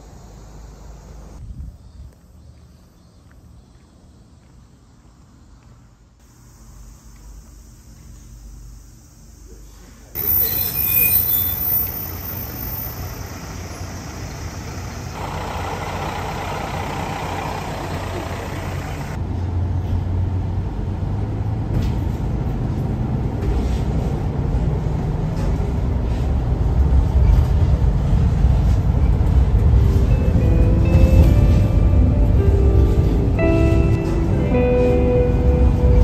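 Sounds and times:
high brake squeal: 10.2s - 14.8s
diesel engine rumbling: 10.2s - 36.0s.

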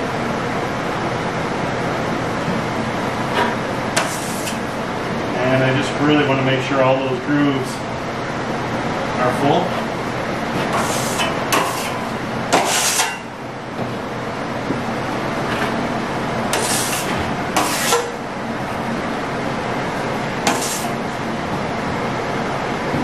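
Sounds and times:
trowel scraping plaster wall: 3.4s - 4.6s, 10.6s - 13.3s, 16.5s - 18.2s, 20.4s - 21.0s.

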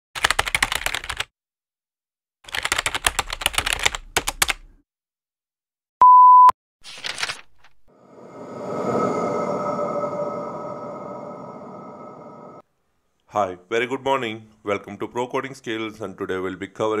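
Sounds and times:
loud steady beep: 6.0s - 6.5s.

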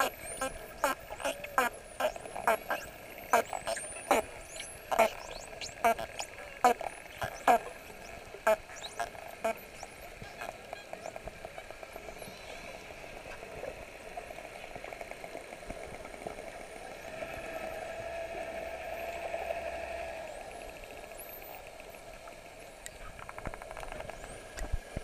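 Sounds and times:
dolphin clicks and buzz: 0.0s - 12.1s.

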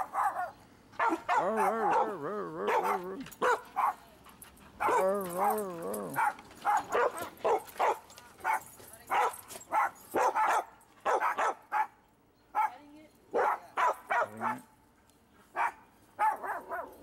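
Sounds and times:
dog howling: 1.1s - 3.3s, 4.8s - 7.1s.

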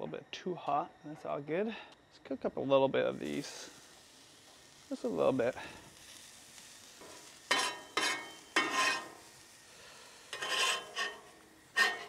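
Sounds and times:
onion rings sizzling on griddle: 2.8s - 12.0s.

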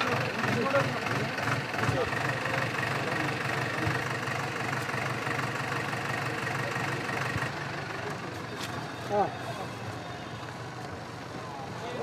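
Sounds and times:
people talking: 0.0s - 5.2s, 6.0s - 12.0s
diesel engine running: 0.0s - 12.0s.

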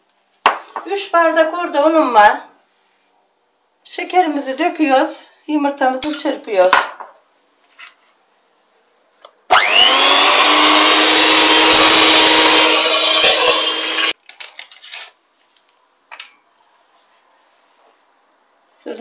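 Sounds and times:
electric mixer whining: 9.5s - 14.2s.

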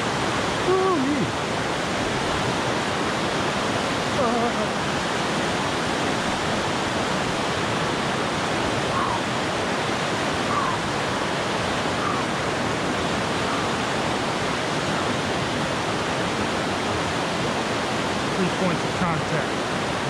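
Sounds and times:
river rushing over rocks: 0.0s - 20.0s.

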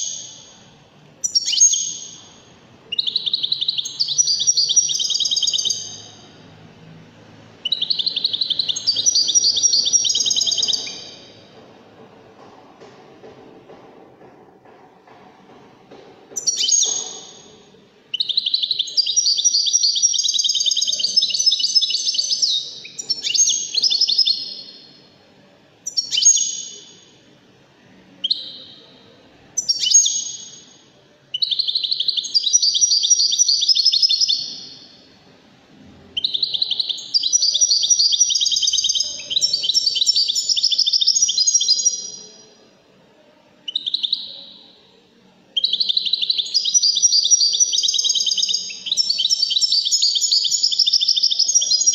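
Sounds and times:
goldfinch singing: 1.2s - 2.2s, 2.9s - 6.2s, 7.6s - 11.3s.

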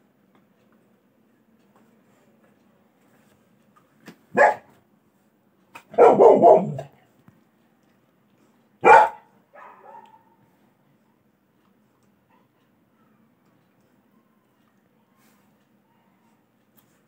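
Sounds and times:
dog barking: 4.3s - 4.8s, 5.8s - 6.9s, 8.8s - 10.4s.

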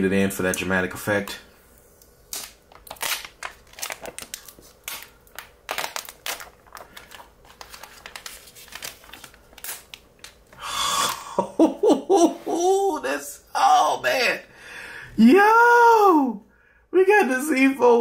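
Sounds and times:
plastic film crinkling and peeling: 2.2s - 11.2s.

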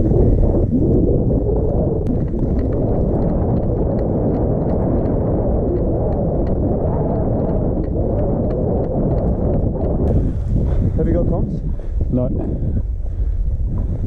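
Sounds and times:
wind buffeting microphone: 0.0s - 14.0s
clicks from footsteps and gear: 2.0s - 10.2s.

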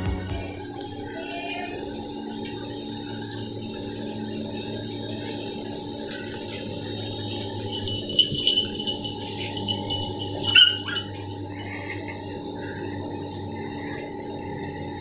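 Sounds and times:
steady background hum: 0.0s - 15.0s
dog yapping: 10.4s - 11.2s.

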